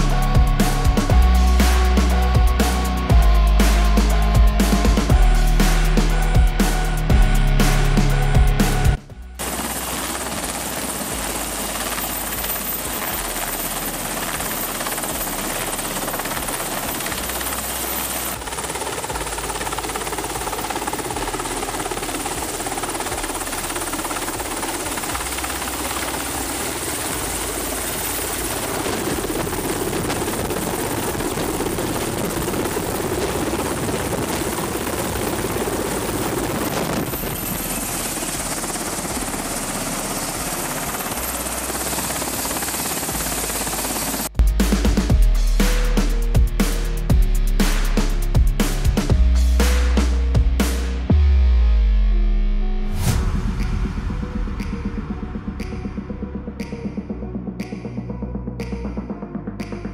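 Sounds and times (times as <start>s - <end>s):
helicopter rotors and engines: 0.0s - 51.2s, 52.9s - 59.9s.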